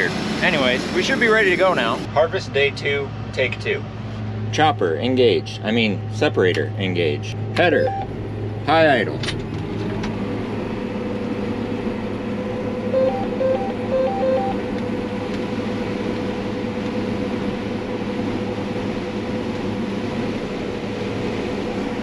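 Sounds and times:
combine harvester drone: 0:00.0 - 0:22.0
two-tone electronic beeps: 0:07.7 - 0:08.1, 0:12.9 - 0:14.7.

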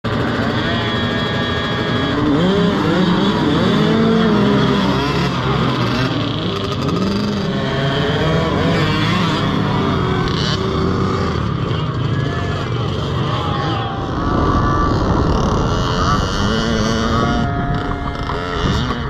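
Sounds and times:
small dirt bike engines revving: 0:00.0 - 0:19.0.

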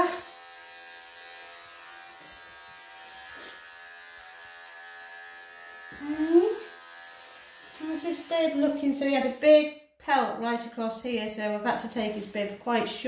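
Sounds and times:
electric clippers buzzing: 0:00.0 - 0:09.4.

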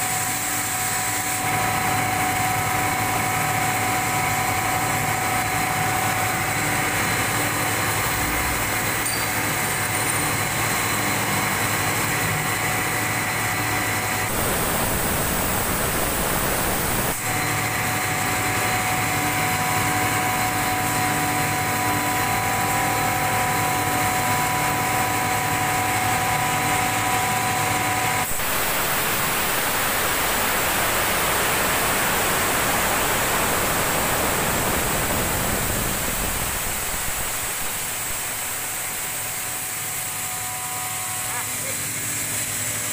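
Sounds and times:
whining hum: 0:00.0 - 0:19.4, 0:24.7 - 0:41.7
exhaust fan air rush: 0:13.4 - 0:18.0, 0:28.2 - 0:40.2.

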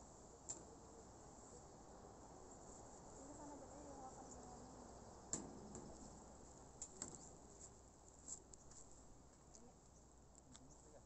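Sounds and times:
distant voices: 0:00.2 - 0:07.6
insects chirring: 0:01.1 - 0:07.6.

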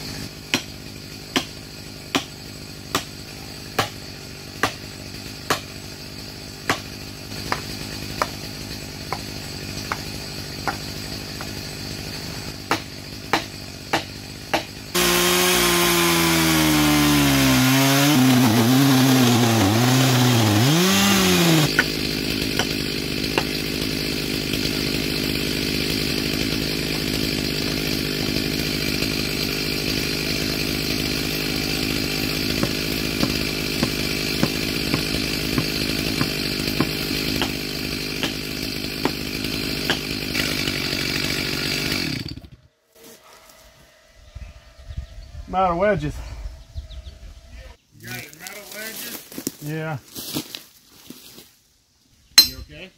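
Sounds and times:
chainsaw idling: 0:00.0 - 0:42.7
chainsaw revving: 0:00.0 - 0:42.7
hammer striking wedges: 0:00.5 - 0:04.0, 0:04.6 - 0:05.7, 0:06.6 - 0:11.6, 0:12.6 - 0:23.8, 0:31.4 - 0:40.6, 0:52.4 - 0:52.8.

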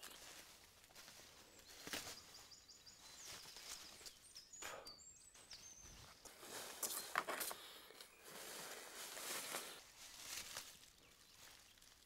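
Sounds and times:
rustling and handling noise: 0:00.0 - 0:02.4, 0:06.0 - 0:12.0.

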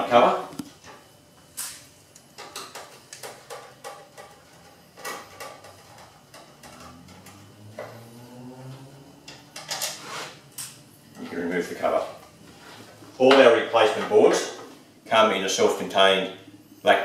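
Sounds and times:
low hum: 0:04.4 - 0:17.0.

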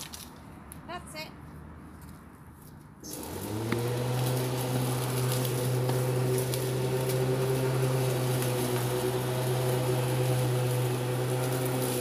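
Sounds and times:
lawnmower motor running: 0:03.0 - 0:12.0.

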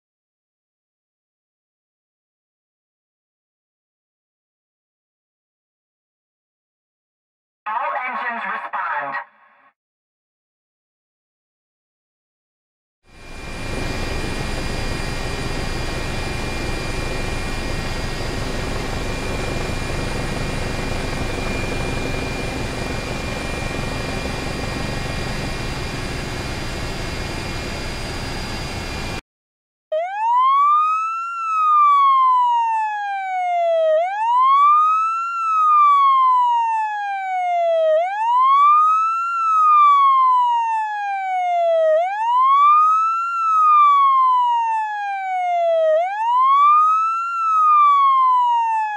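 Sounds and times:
emergency siren wailing: 0:13.1 - 0:29.2, 0:29.9 - 0:48.9
helicopter rotor and engine: 0:13.1 - 0:29.2.

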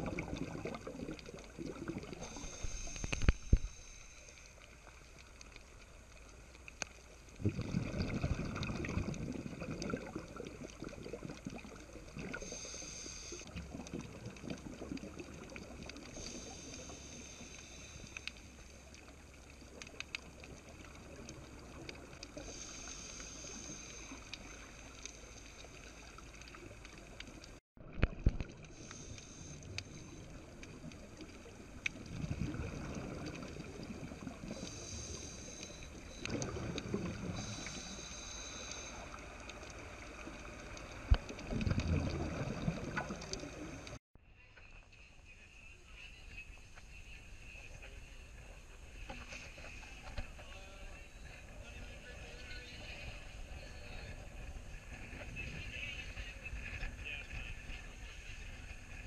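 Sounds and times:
scuba regulator bubbles: 0:00.0 - 0:44.0
muffled underwater sound: 0:00.0 - 0:59.0.

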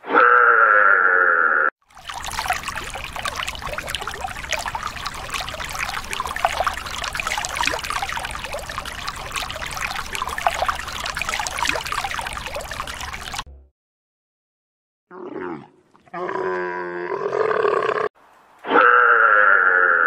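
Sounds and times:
water trickling and babbling: 0:01.8 - 0:13.5.

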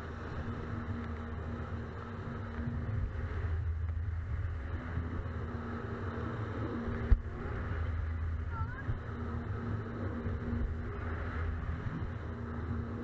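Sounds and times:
jet ski engine running: 0:00.0 - 0:13.0
water rushing under hull: 0:00.0 - 0:13.0.

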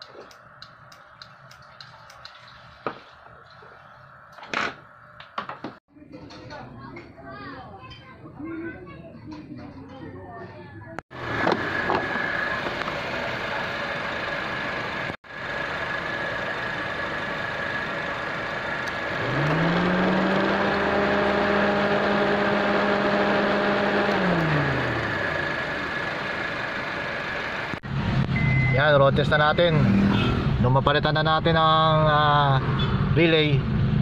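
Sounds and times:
rising whirring tone: 0:14.0 - 0:28.6.

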